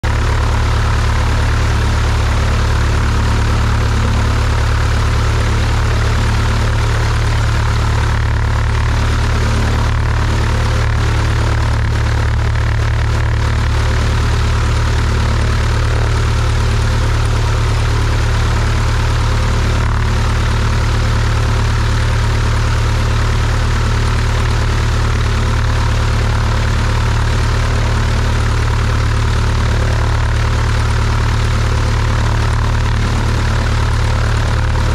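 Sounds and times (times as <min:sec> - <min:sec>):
propeller plane engine droning: 0:00.0 - 0:34.9.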